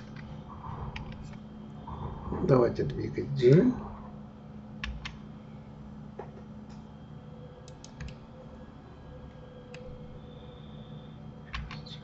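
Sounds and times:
low hum: 0.0s - 12.0s
keyboard and mouse clicks: 0.9s - 1.4s, 4.8s - 5.2s, 7.6s - 8.2s, 11.5s - 12.0s.

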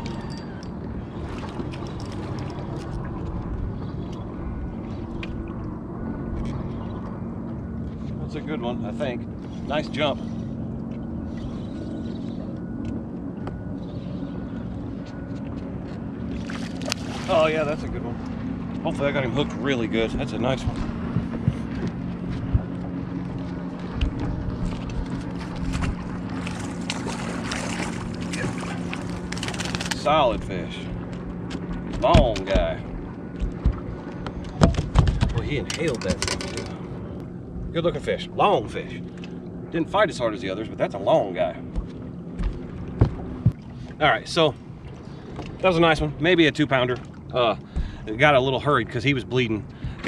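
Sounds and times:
choppy water: 0.0s - 50.0s
motorboat engines rumbling: 0.0s - 50.0s
wind buffeting microphone: 17.0s - 30.5s, 31.2s - 36.8s
light knocks on boat deck: 31.5s - 35.4s, 41.7s - 43.6s.

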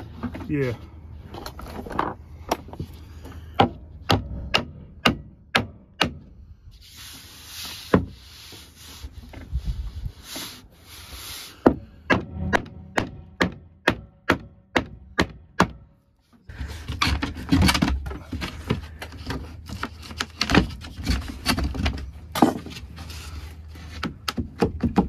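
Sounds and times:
hammering on wood: 3.6s - 6.3s, 11.6s - 15.9s.

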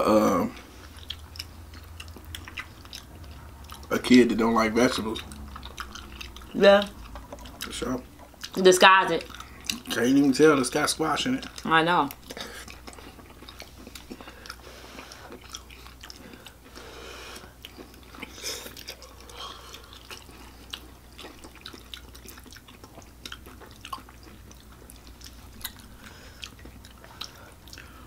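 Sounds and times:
chewing and mouth sounds: 0.2s - 28.0s.

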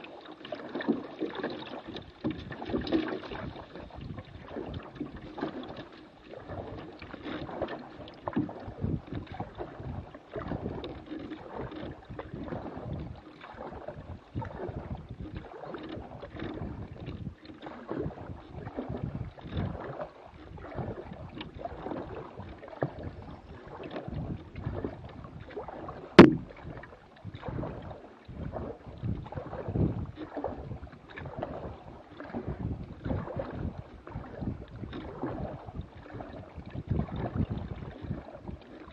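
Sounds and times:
canoe paddle strokes: 0.0s - 38.9s
water splashing against hull: 0.0s - 38.9s
sharp knock: 26.2s - 26.5s.

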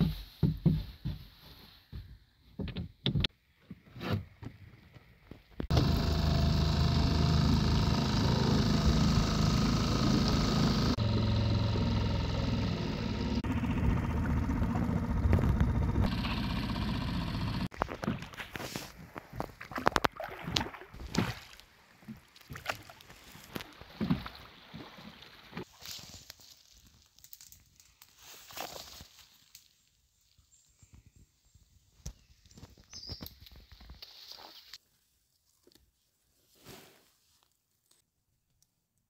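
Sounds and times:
outboard motor running: 5.7s - 18.9s
water splashing: 17.8s - 25.8s.

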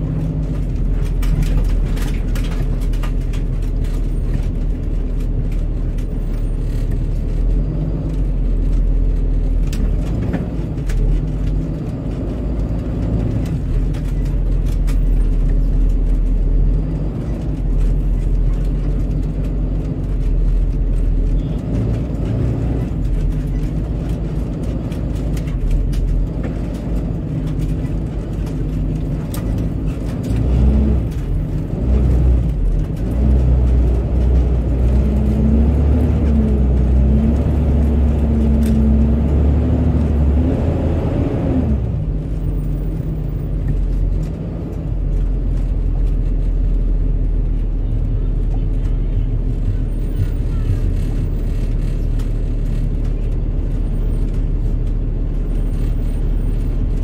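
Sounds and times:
rumble of city traffic: 0.0s - 57.0s.

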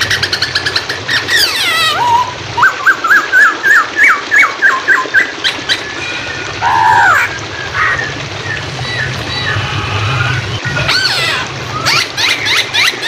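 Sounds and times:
running water hiss: 0.0s - 13.0s.

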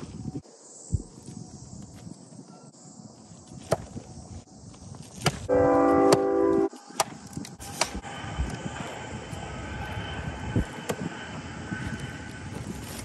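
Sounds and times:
rumbling outdoor background: 0.0s - 13.0s
hatchet striking wooden stump: 5.2s - 5.4s.

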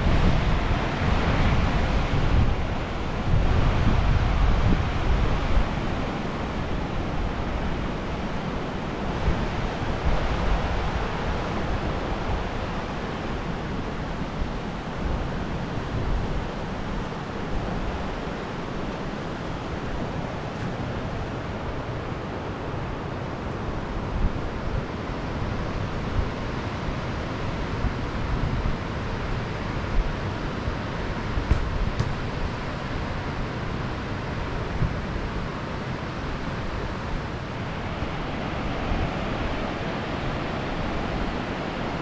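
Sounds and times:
wind buffeting microphone: 0.0s - 22.6s, 23.8s - 33.7s
river rushing: 0.0s - 42.0s.

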